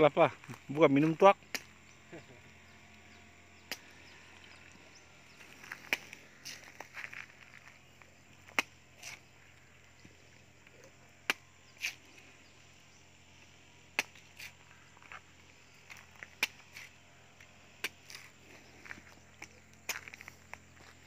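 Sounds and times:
machete chopping coconut husk: 0:01.5 - 0:01.8, 0:03.6 - 0:04.0, 0:05.6 - 0:07.2, 0:08.4 - 0:09.3, 0:11.2 - 0:12.1, 0:13.8 - 0:15.2, 0:15.8 - 0:18.4.

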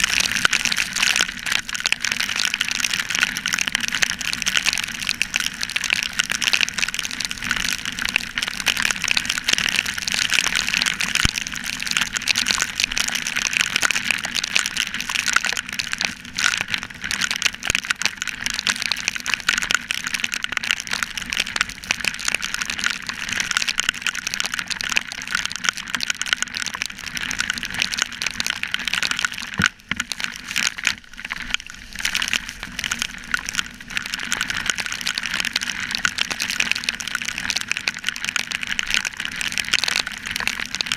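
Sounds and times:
rain drops striking camera: 0:00.0 - 0:40.9.

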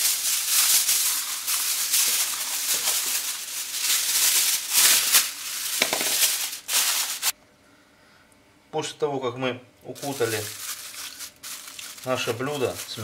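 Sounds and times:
aluminium foil crinkling: 0:00.0 - 0:07.4, 0:10.0 - 0:13.0.

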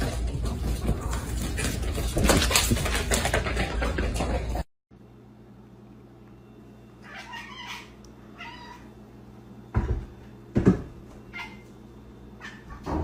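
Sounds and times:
cat meowing: 0:07.0 - 0:08.9.

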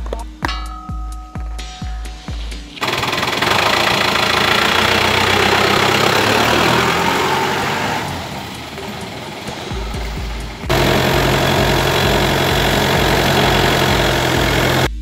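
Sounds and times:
jeep engine driving off: 0:02.8 - 0:15.0.

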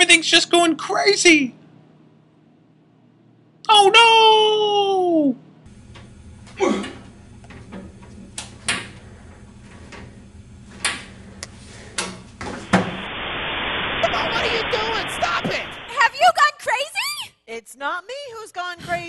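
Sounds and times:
low steady hum: 0:05.5 - 0:16.3.

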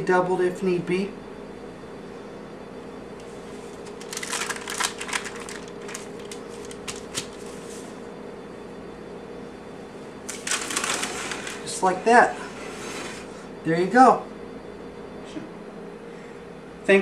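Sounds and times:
faint steady hum: 0:00.0 - 0:17.0
wax paper crinkling: 0:03.8 - 0:07.8, 0:10.3 - 0:11.7.

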